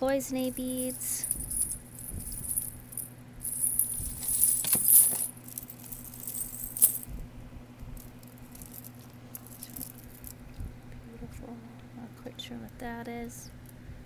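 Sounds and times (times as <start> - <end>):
beads and jewelry clinking: 0.1 - 7.2, 8.0 - 10.4.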